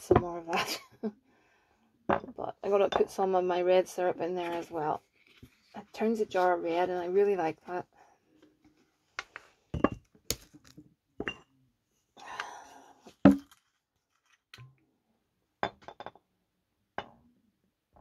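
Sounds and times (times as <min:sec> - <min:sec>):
glass bottles clinking: 0:09.8 - 0:10.1, 0:11.2 - 0:11.5, 0:13.3 - 0:13.5.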